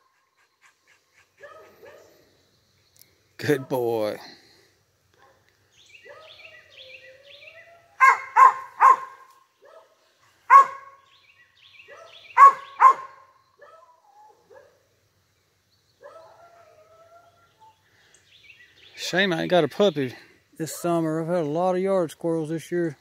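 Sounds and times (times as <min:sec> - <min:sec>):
dog barking: 0:01.4 - 0:02.1, 0:06.0 - 0:06.5, 0:08.0 - 0:11.0, 0:11.9 - 0:14.8.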